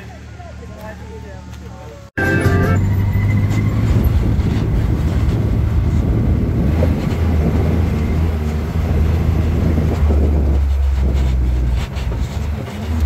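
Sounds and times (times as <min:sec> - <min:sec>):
off-road vehicle engine droning: 0:00.0 - 0:13.0.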